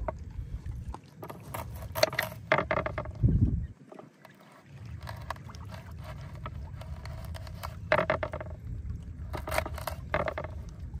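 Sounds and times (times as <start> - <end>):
steady low rumble: 0.0 - 1.1, 8.4 - 9.4.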